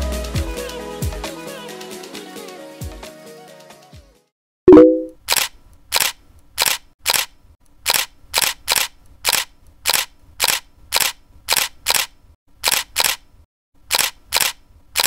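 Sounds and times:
camera shutter clicks: 0:05.2 - 0:07.3, 0:07.9 - 0:13.2, 0:13.9 - 0:15.0.

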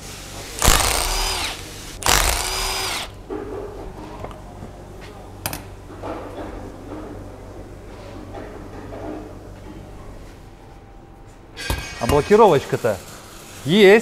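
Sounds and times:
power tool running: 0:00.6 - 0:03.2.

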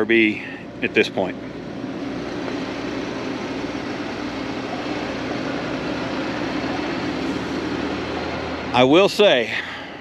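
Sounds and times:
air compressor running: 0:00.0 - 0:10.0.

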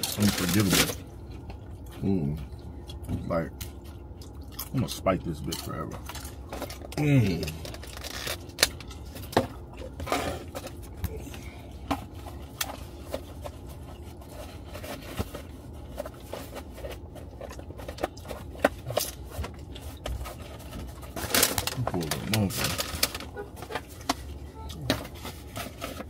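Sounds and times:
foil tray being handled: 0:00.0 - 0:01.0
low steady rumble: 0:00.0 - 0:26.0.

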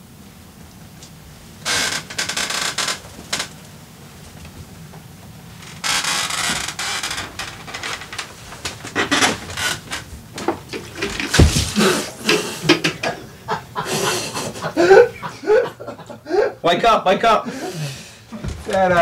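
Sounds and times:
chair clattering on tile floor: 0:05.7 - 0:13.2, 0:18.3 - 0:19.0
scuffling: 0:05.8 - 0:12.1
heavy thud: 0:11.2 - 0:12.0.

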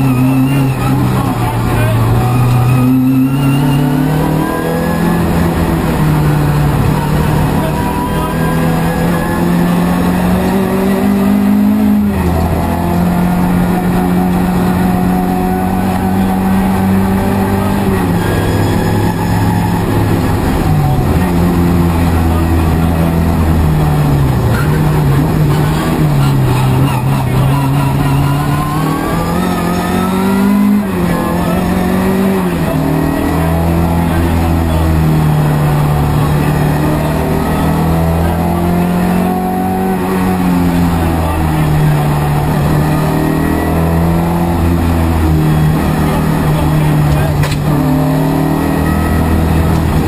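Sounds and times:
rally car engine accelerating hard: 0:00.0 - 0:50.0.

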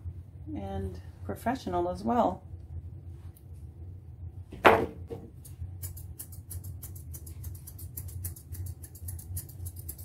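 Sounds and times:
low steady hum: 0:00.0 - 0:10.0
shears snipping fur: 0:05.4 - 0:10.0.

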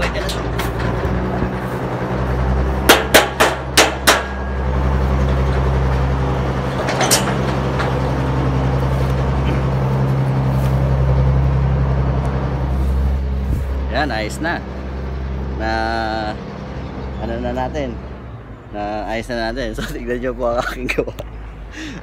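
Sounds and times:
low machine hum: 0:00.0 - 0:18.7
hammer striking wooden post: 0:02.9 - 0:04.5.

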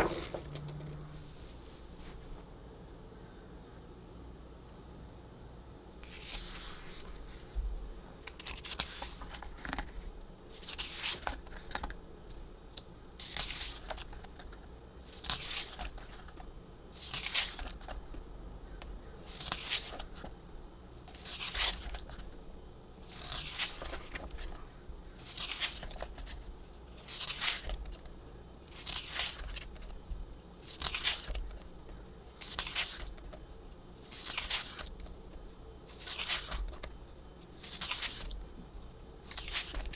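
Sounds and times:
pages turning: 0:06.0 - 0:07.3, 0:08.2 - 0:12.0, 0:13.2 - 0:18.0, 0:19.2 - 0:20.3, 0:21.1 - 0:22.3, 0:23.0 - 0:24.6, 0:25.2 - 0:28.1, 0:28.7 - 0:30.0, 0:30.6 - 0:31.7, 0:32.3 - 0:33.4, 0:34.0 - 0:35.2, 0:35.9 - 0:37.0, 0:37.6 - 0:38.4, 0:39.2 - 0:39.9.

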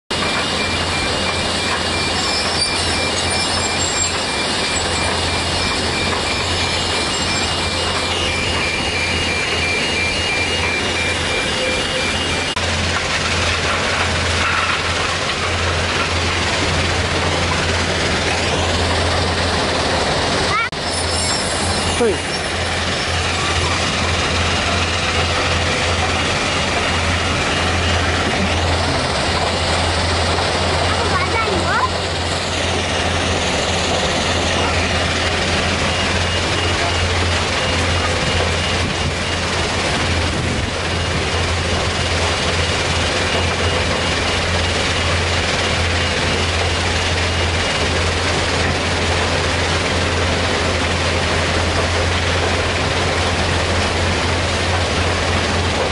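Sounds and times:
two-pitch warning beep: 0:00.1 - 0:12.6, 0:34.1 - 0:39.7
heavy machinery din: 0:00.1 - 0:55.9.

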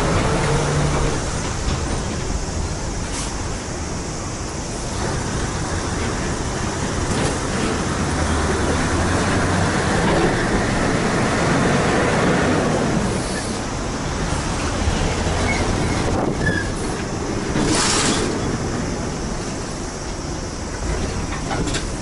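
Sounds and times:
truck diesel engines running: 0:00.0 - 0:22.0
tyres rolling: 0:00.0 - 0:22.0
short hiss: 0:03.0 - 0:03.5, 0:17.6 - 0:18.4.

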